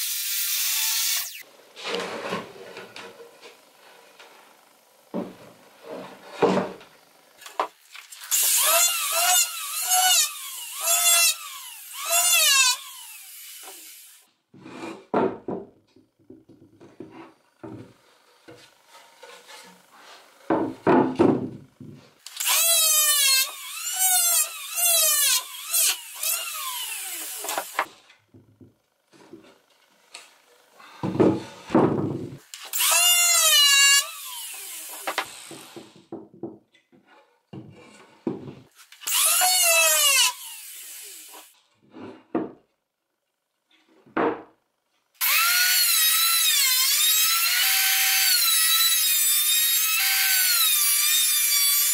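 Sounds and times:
electric hand planer cutting wood: 0.0 - 7.6, 8.2 - 14.2, 22.3 - 27.9, 32.6 - 35.9, 39.1 - 41.5, 45.2 - 51.9
board thudding on bench: 20.5 - 22.0, 31.0 - 32.4.

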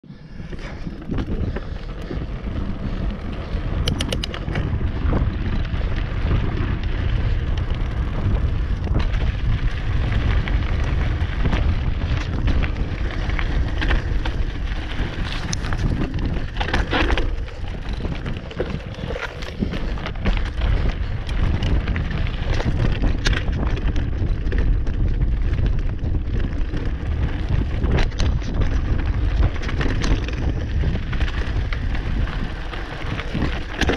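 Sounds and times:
wind rumble on microphone: 0.0 - 33.9
bike tyres rumbling over stones: 0.1 - 33.9
bike clattering over stones: 0.6 - 33.9
sharp clicks: 3.8 - 4.6.

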